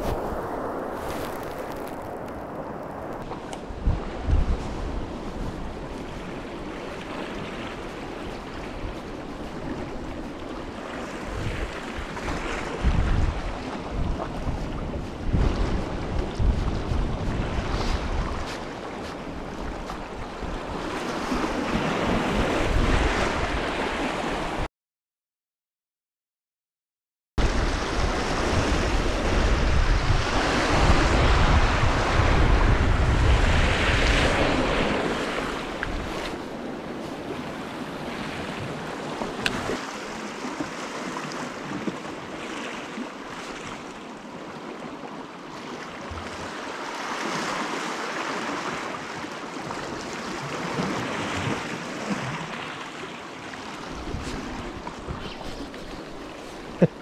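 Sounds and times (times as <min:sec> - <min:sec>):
surf washing against rocks: 0:00.0 - 0:24.7
wind buffeting microphone: 0:00.0 - 0:24.7, 0:27.4 - 0:39.8, 0:53.8 - 0:57.0.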